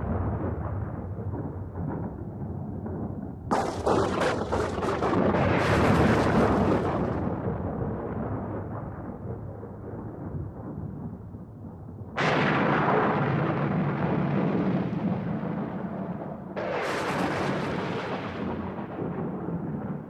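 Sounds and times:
loud crash with sharp cracks: 0:03.5 - 0:07.4.

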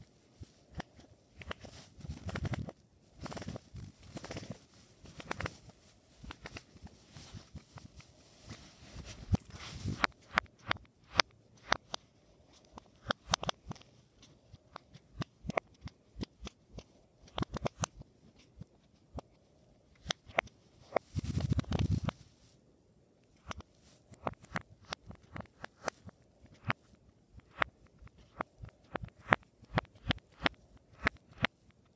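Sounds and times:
rustling rub on cloth: 0:01.4 - 0:10.4, 0:20.8 - 0:22.6.

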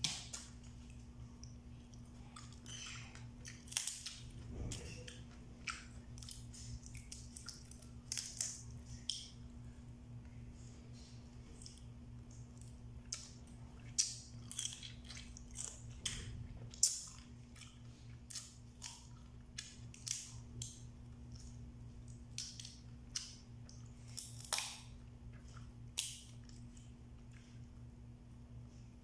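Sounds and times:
crunching and chewing: 0:00.0 - 0:09.6, 0:10.9 - 0:28.0
steady low hum: 0:00.0 - 0:29.0
crab shells cracking: 0:02.4 - 0:04.3, 0:05.1 - 0:09.4, 0:12.6 - 0:25.0.

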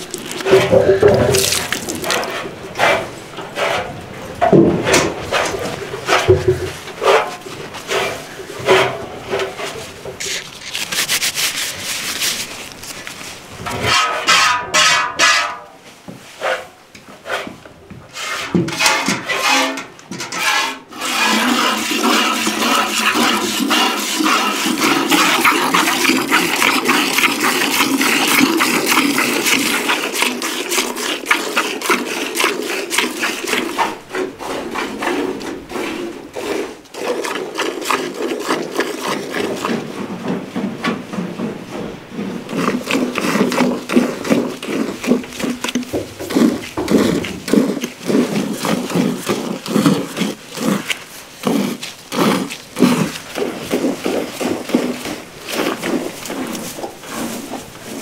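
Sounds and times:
milk squirting into metal pail: 0:00.0 - 0:03.0, 0:21.0 - 0:35.8, 0:36.9 - 0:39.8, 0:42.5 - 0:57.3.

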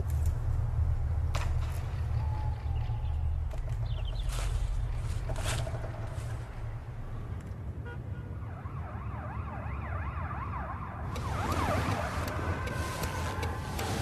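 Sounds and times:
car and road noise: 0:00.0 - 0:14.0
emergency vehicle siren: 0:07.9 - 0:14.0.

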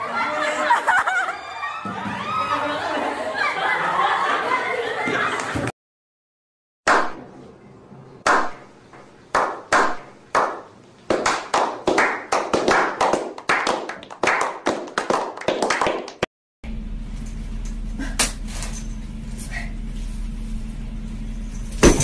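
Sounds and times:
group clapping: 0:09.3 - 0:16.3.

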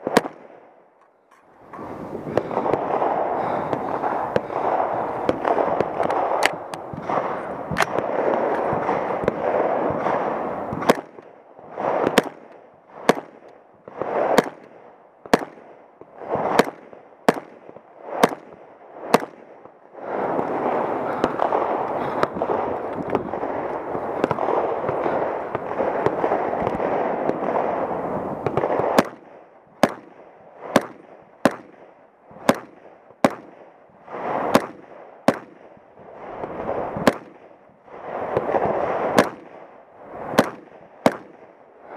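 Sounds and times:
rifle shots: 0:00.0 - 0:00.8, 0:01.6 - 0:41.9
steady rushing noise: 0:01.3 - 0:14.4, 0:19.9 - 0:29.0.

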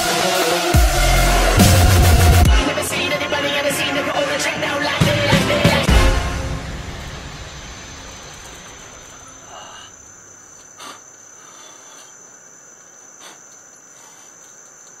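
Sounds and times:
music: 0:00.0 - 0:08.4
crickets trilling: 0:02.6 - 0:05.1, 0:06.2 - 0:15.0
faint clicks: 0:12.8 - 0:15.0.

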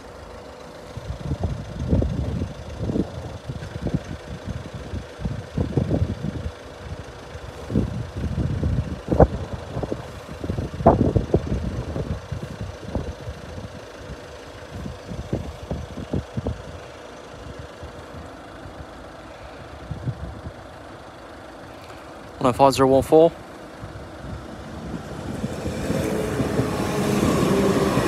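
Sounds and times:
wind buffeting microphone: 0:00.9 - 0:16.9, 0:19.8 - 0:20.7, 0:23.7 - 0:28.0.

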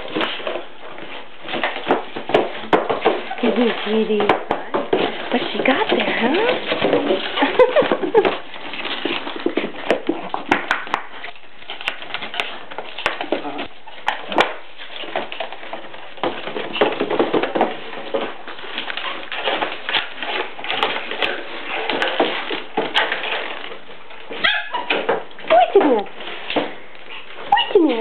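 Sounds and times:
cardboard box scraping on tiles: 0:00.0 - 0:28.0
puppy whimpering: 0:24.4 - 0:26.1, 0:27.2 - 0:28.0.

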